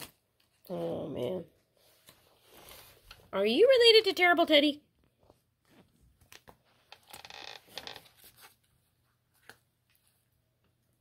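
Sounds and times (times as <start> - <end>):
paper crinkling and rustling: 7.7 - 10.4.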